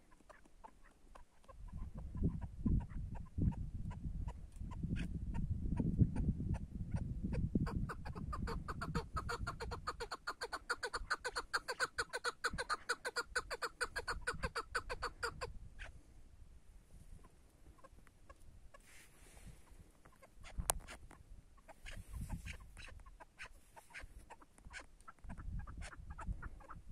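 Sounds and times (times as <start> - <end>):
partridge clucking call: 7.7 - 15.5.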